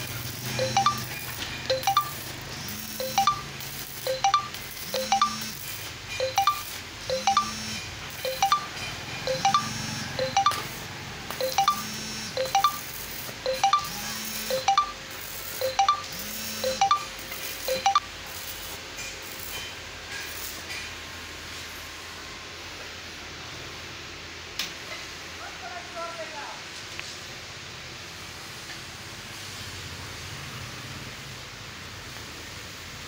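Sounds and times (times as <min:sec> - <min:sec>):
bell-like chiming melody: 0:00.6 - 0:01.1, 0:01.7 - 0:02.2, 0:03.0 - 0:03.5, 0:04.1 - 0:05.4, 0:06.2 - 0:07.6, 0:08.2 - 0:10.6, 0:11.4 - 0:11.8, 0:12.4 - 0:12.9, 0:13.5 - 0:13.9, 0:14.5 - 0:15.0, 0:15.6 - 0:17.1.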